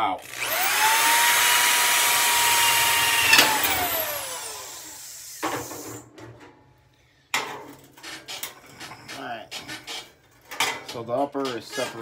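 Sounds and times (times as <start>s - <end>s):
electric drill whining: 0.2s - 6.0s
sharp metallic knocks: 3.2s - 3.8s.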